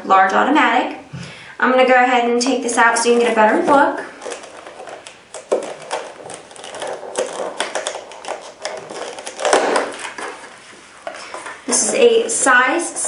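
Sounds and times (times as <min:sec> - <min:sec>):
plastic packaging crackling: 0:02.9 - 0:12.5.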